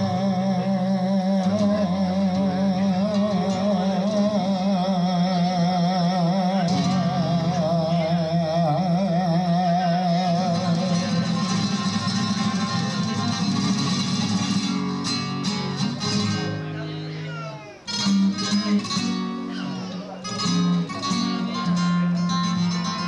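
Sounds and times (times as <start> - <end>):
man singing with vibrato: 0.0 - 14.6.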